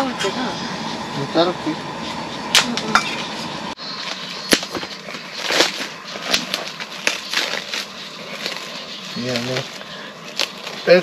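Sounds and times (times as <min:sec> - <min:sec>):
low background hum: 0:00.0 - 0:11.0
rustling: 0:04.0 - 0:11.0.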